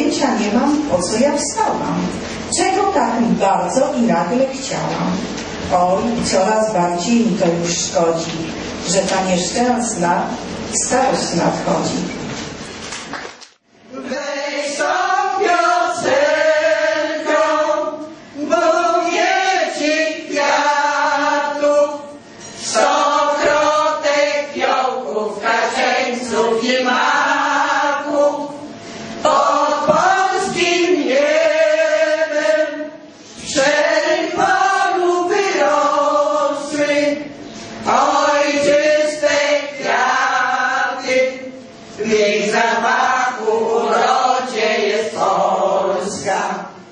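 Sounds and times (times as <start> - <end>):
women's vocal ensemble singing: 13.8 - 46.9.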